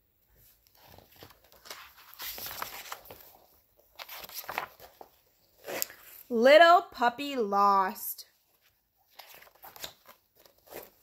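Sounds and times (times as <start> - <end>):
book pages turning: 0.4 - 6.3, 8.5 - 11.0.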